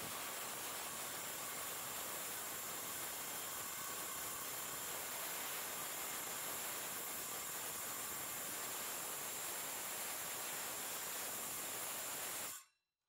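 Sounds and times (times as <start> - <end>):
steady white noise hiss: 0.0 - 12.5.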